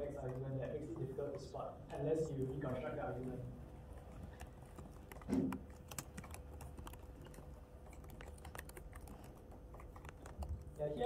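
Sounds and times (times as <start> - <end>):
typing on computer keyboard: 4.2 - 11.0.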